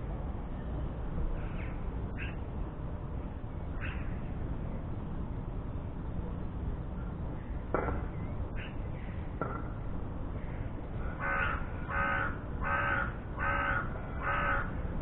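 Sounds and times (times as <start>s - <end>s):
crow cawing: 11.0s - 14.7s.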